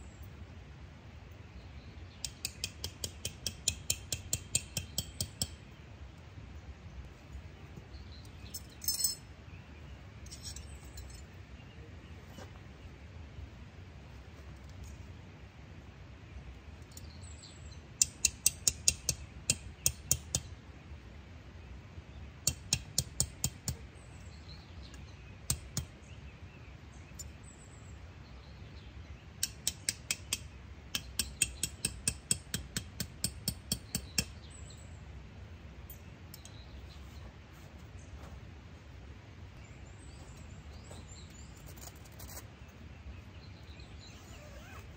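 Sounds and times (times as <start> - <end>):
tent stakes being hammered: 2.2 - 5.7, 18.0 - 20.5, 22.4 - 23.9, 25.4 - 26.0, 29.4 - 34.6
faint bird chirps: 39.6 - 44.9.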